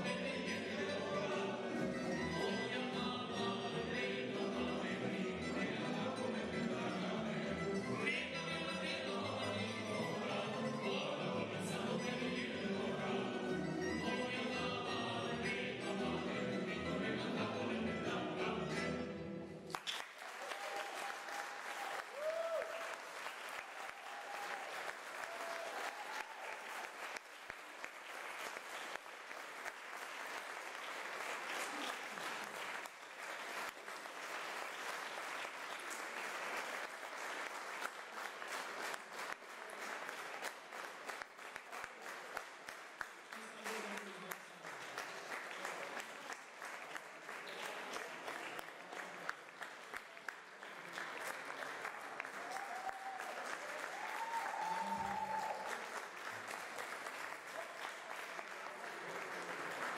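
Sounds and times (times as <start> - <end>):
audience applauding: 19.7 - 59.9.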